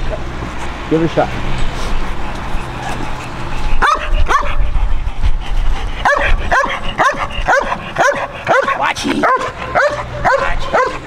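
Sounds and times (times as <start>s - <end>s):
dog barking sharply: 3.8s - 4.6s, 6.0s - 11.0s.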